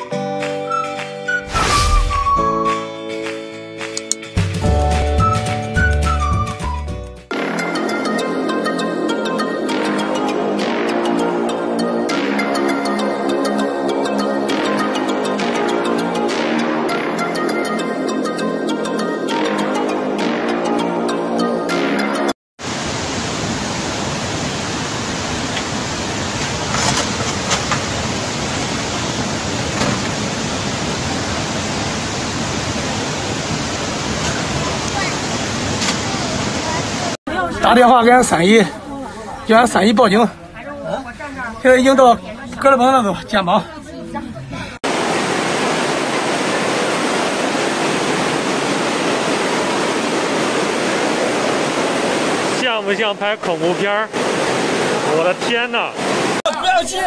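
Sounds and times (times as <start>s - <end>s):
floodwater rushing: 22.6s - 37.2s, 44.8s - 57.0s.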